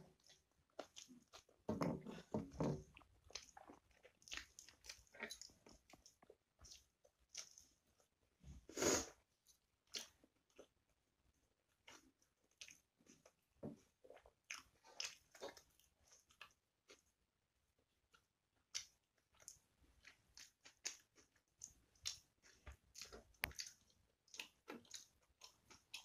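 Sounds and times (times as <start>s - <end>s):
person chewing with lip smacks: 0.1s - 7.7s, 9.9s - 10.7s, 11.8s - 13.4s, 14.0s - 17.0s, 18.1s - 26.0s
slurp: 8.7s - 9.2s.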